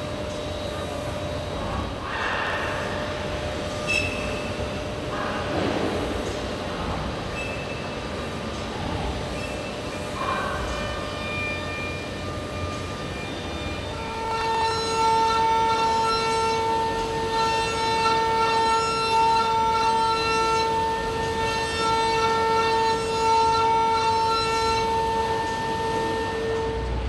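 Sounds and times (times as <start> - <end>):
milling spindle cutting whine: 9.3 - 27.0.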